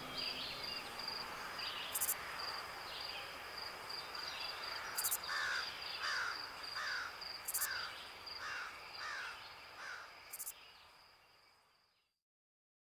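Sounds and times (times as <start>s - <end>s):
crickets trilling: 0.1s - 11.5s.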